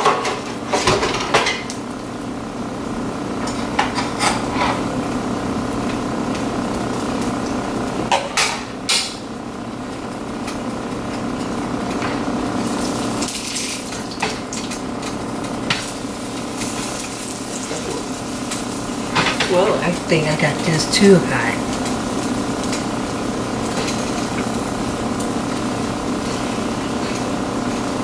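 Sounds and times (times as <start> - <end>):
steady hum: 0.0 - 28.0
pancake frying in a pan: 3.4 - 19.3, 21.7 - 28.0.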